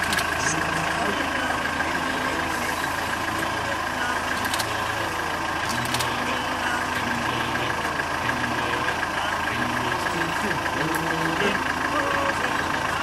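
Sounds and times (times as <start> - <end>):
vehicle engine idling: 0.0 - 13.0
faint clicks: 4.3 - 5.0.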